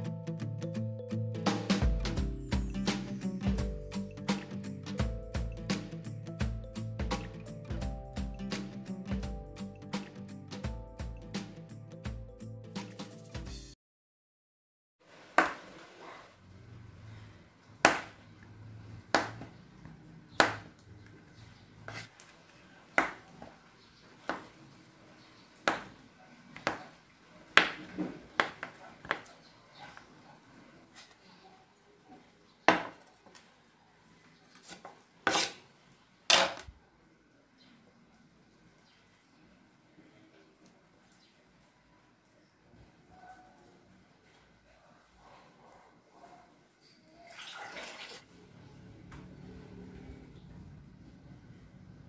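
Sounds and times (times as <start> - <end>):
knife cutting through butter: 34.6 - 35.6.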